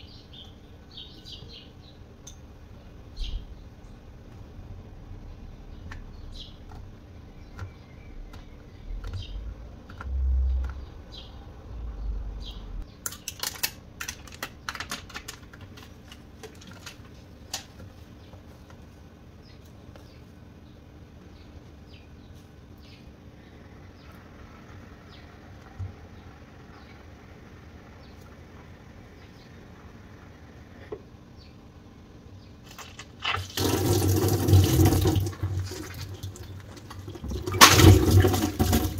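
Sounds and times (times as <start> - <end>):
plastic tape pouch crackling: 13.0 - 17.7
water gushing into a metal sink: 33.2 - 38.9.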